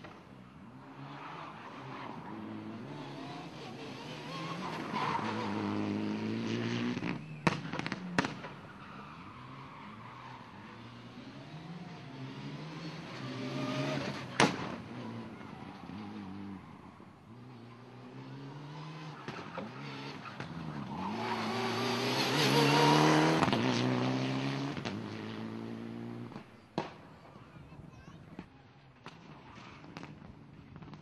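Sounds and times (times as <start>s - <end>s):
rally car engine revving: 0.9s - 8.5s, 9.6s - 26.4s.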